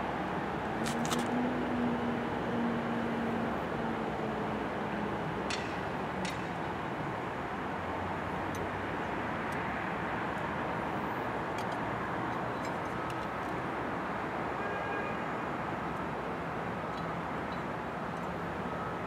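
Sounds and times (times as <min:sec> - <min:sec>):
traffic noise: 0:00.0 - 0:19.0
metal clicks and taps: 0:05.5 - 0:06.5.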